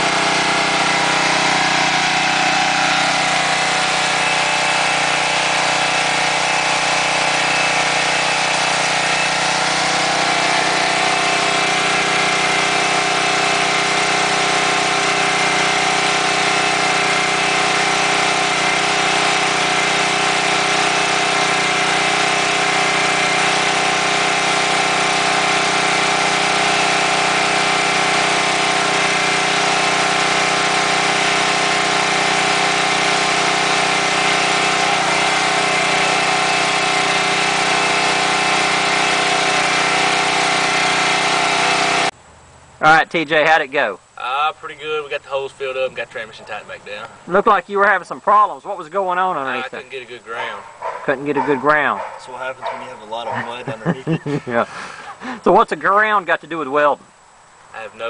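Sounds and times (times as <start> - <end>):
generator running: 0.0 - 58.0.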